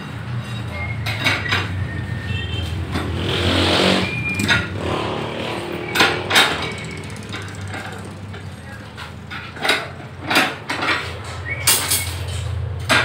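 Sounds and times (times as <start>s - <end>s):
loud metal clanks: 2.8s - 13.0s
metal clinks and knocks: 5.9s - 13.0s.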